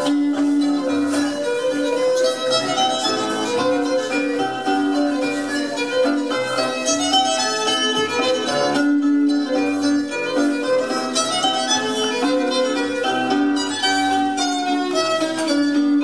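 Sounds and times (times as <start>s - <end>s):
string folk dance melody: 0.0s - 16.0s.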